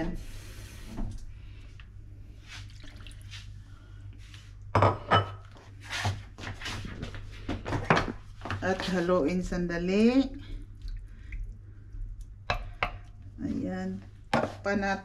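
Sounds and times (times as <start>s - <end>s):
low steady hum: 0.0s - 15.0s
kitchenware clattering: 4.8s - 5.5s.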